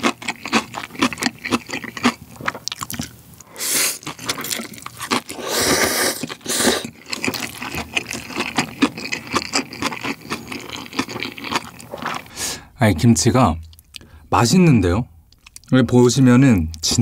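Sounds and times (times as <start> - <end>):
wet chewing and mouth clicks: 0.0 - 12.4, 13.6 - 14.1, 15.3 - 15.8
person slurping noodles: 3.6 - 8.3.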